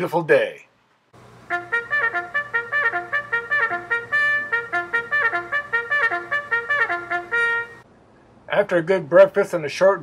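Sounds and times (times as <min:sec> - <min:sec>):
trumpet fanfare: 0:01.5 - 0:07.8.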